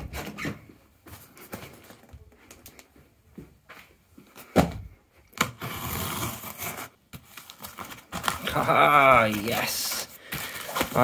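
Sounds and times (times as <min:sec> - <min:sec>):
package rustling: 0:06.4 - 0:11.0.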